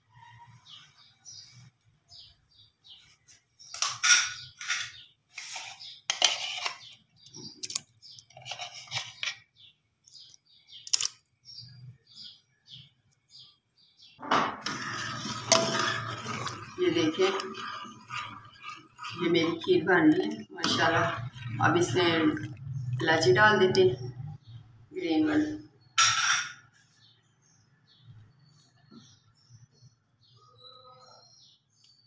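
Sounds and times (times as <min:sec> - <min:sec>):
metal ladle scraping steel pot: 0:03.8 - 0:09.4, 0:14.5 - 0:24.1.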